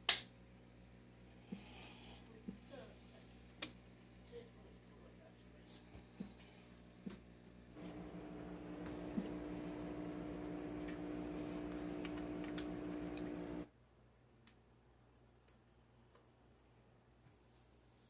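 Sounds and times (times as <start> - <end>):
aquarium air pump hum: 0.3 - 13.7
faint clicks: 7.9 - 13.7.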